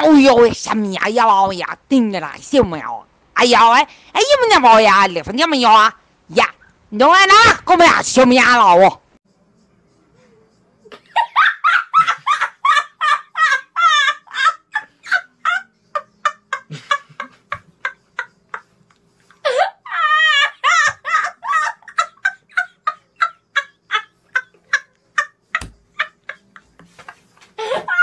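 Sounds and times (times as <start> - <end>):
boy laughing: 11.0 - 18.6, 19.4 - 28.0.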